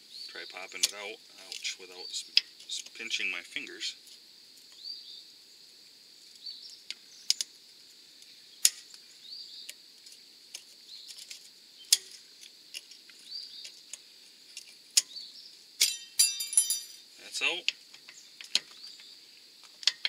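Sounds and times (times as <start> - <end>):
steady high hiss: 0.0 - 20.0
pry tool metallic clicks: 15.8 - 17.0.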